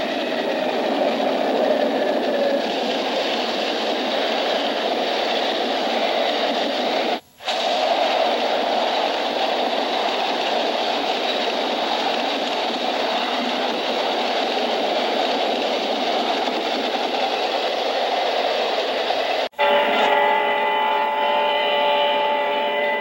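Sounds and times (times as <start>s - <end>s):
film soundtrack hiss: 0.0s - 23.0s
freight train rumbling past: 0.0s - 23.0s.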